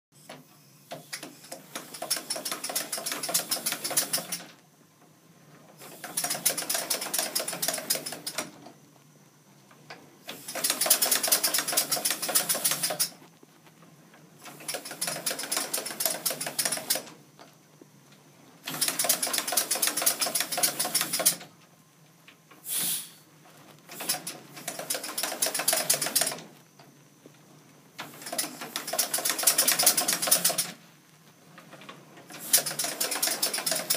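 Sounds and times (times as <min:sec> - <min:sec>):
air hiss: 0:00.2 - 0:04.6, 0:05.8 - 0:08.7, 0:10.2 - 0:13.2, 0:14.4 - 0:17.2, 0:18.6 - 0:21.5, 0:22.5 - 0:26.5, 0:28.0 - 0:31.0, 0:32.3 - 0:33.9.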